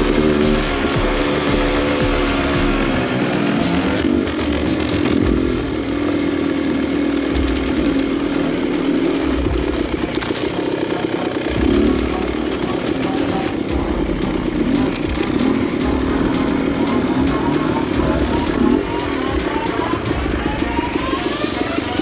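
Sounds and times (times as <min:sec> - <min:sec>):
two-stroke dirt bike engine: 0:00.0 - 0:22.0
knocks and rattles from trail: 0:07.4 - 0:10.8.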